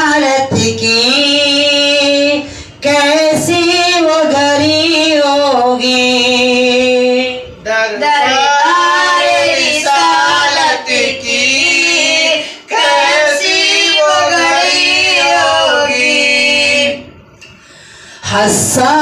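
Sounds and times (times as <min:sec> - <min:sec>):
short breaths: 0:17.4 - 0:18.2.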